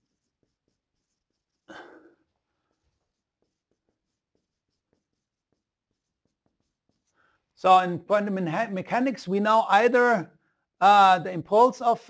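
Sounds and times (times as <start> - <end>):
marker writing on whiteboard: 0.0 - 7.6.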